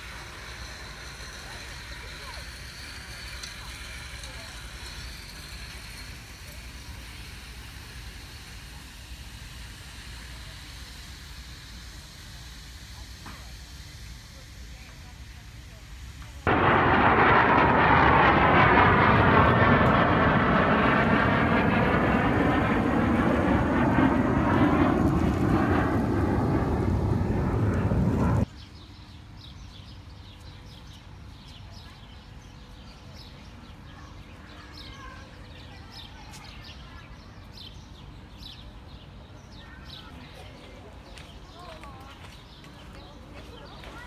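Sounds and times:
airplane roaring overhead: 16.4s - 28.5s.

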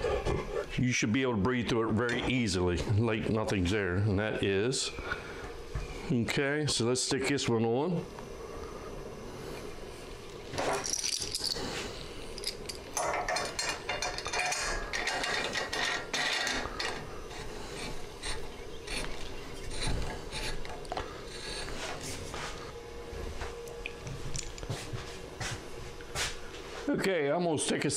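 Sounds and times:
metal parts scraping and clicking: 10.5s - 21.7s.

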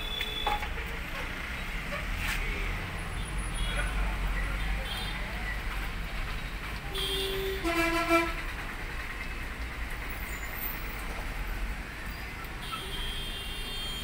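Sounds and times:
two-tone horn honk: 7.0s - 8.4s.

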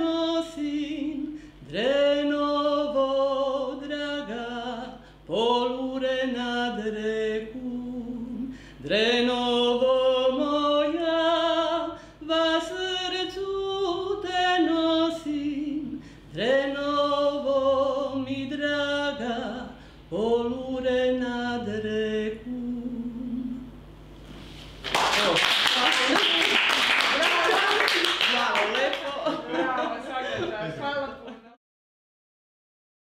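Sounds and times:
woman singing unaccompanied: 0.0s - 23.7s.

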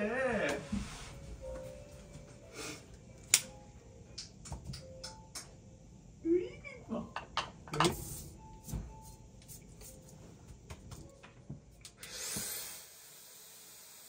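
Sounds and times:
hair dryer whining and blowing: 12.0s - 14.0s.

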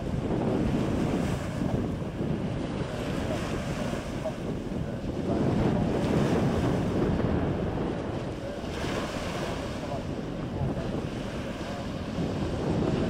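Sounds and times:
water washing along shore: 0.0s - 13.0s
wind buffeting microphone: 0.0s - 13.0s.

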